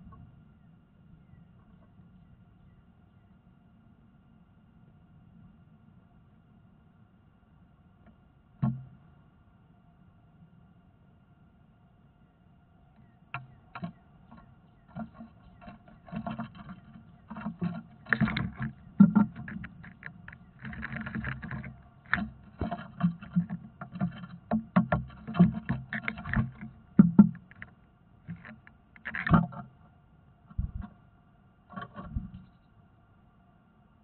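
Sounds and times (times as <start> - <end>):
faint electronic hum: 0.0 - 34.0
birds scuffling in wooden box: 13.8 - 27.7.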